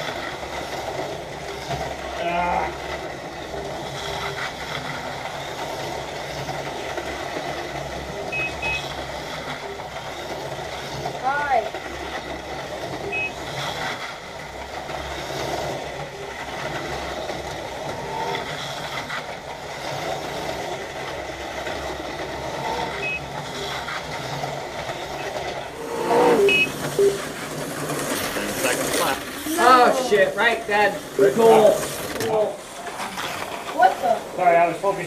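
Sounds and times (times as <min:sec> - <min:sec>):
slot car motors whirring: 0:00.0 - 0:35.0
short electronic beeps: 0:08.3 - 0:08.9, 0:13.1 - 0:13.4, 0:22.9 - 0:23.2, 0:26.0 - 0:27.2.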